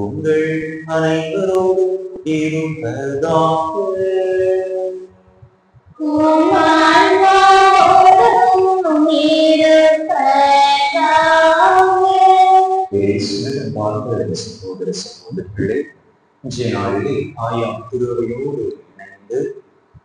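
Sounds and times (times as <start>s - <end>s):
priest chanting: 0.0s - 5.1s, 6.0s - 12.2s, 12.8s - 19.5s
group of voices singing: 6.0s - 15.8s, 16.4s - 19.5s.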